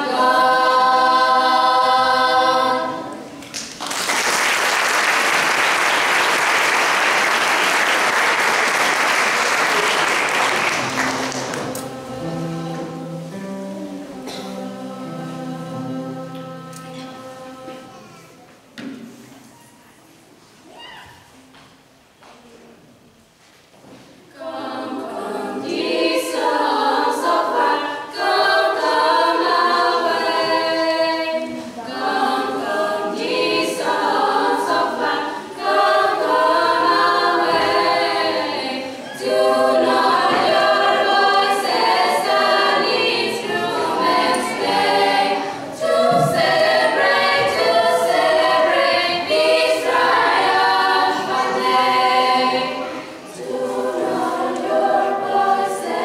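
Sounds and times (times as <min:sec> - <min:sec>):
girls' choir singing a cappella: 0:00.0 - 0:19.2, 0:24.2 - 0:56.0.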